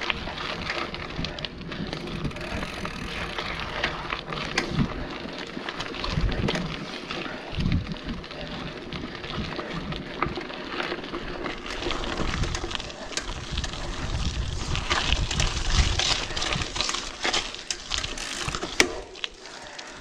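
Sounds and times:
bike clicks and rattles: 0.0 - 20.0
tyres rumbling over dirt: 0.0 - 20.0
wind buffeting microphone: 0.1 - 5.2, 6.0 - 6.9, 7.5 - 10.1, 11.8 - 17.1.

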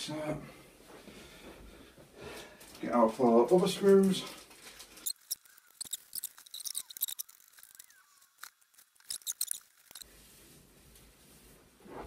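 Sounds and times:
small parts clicking and rustling: 2.6 - 10.1
faint squeaks: 4.8 - 10.1.

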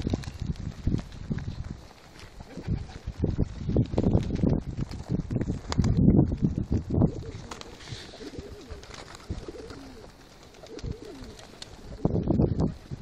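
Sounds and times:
pigeons cooing: 7.0 - 13.0.

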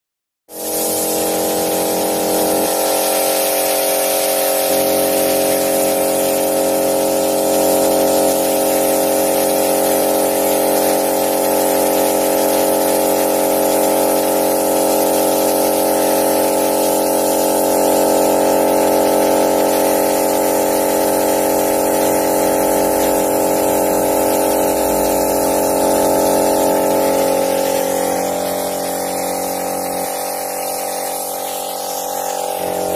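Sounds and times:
air compressor running: 0.5 - 32.9
air hissing: 0.6 - 10.9, 19.0 - 32.9.

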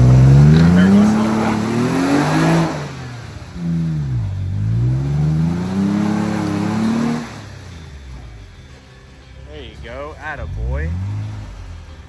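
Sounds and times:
truck engine revving: 0.0 - 12.0.

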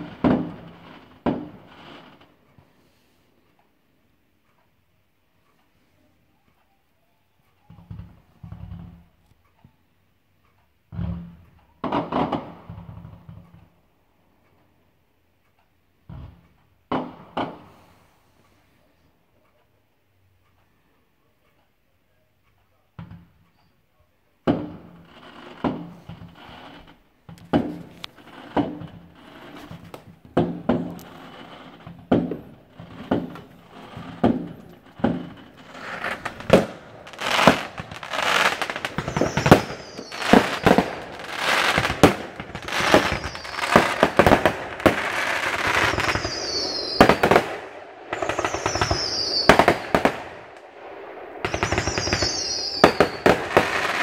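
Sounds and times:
fireworks bangs: 0.0 - 2.4, 10.9 - 13.7, 16.1 - 18.0, 24.4 - 54.0
firework whistles: 30.7 - 54.0.

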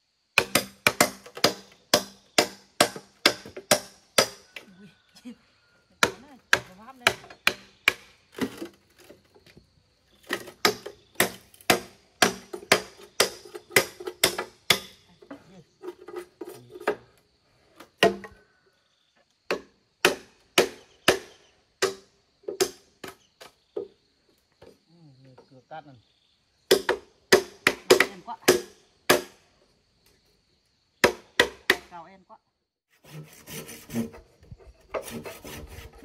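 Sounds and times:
hand tool chopping wood: 0.4 - 4.7, 6.0 - 9.4, 10.2 - 17.1, 17.8 - 18.4, 19.5 - 23.2, 26.7 - 29.4, 31.0 - 32.0, 34.8 - 36.0.

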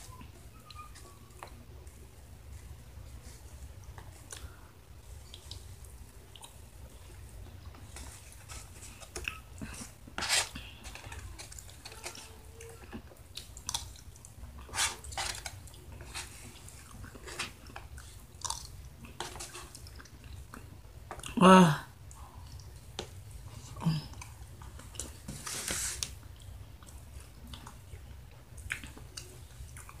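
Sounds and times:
low steady hum: 0.0 - 30.0
person chewing food: 3.2 - 21.4, 26.1 - 30.0.

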